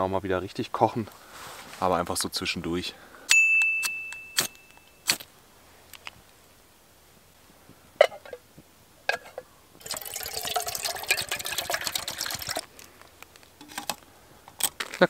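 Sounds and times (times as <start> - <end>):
water pouring into pot: 9.8 - 12.6.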